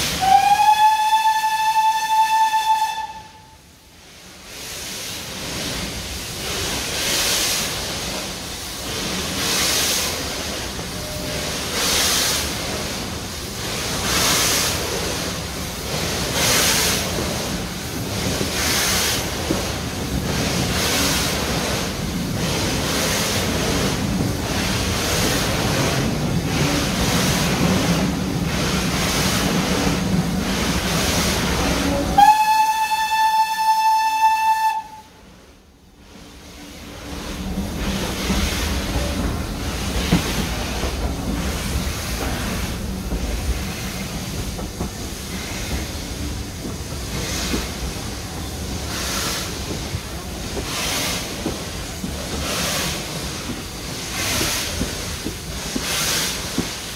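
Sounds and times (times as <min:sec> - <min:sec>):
steam locomotive exhaust beats: 0:00.0 - 0:56.9
steam whistle: 0:00.1 - 0:03.6, 0:31.9 - 0:35.2.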